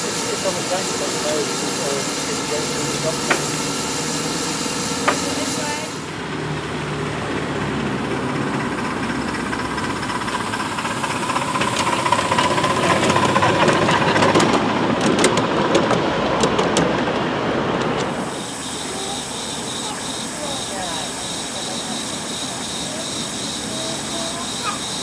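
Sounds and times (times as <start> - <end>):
miniature steam locomotive running: 0.0 - 25.0
coaches clicking over track: 7.8 - 25.0.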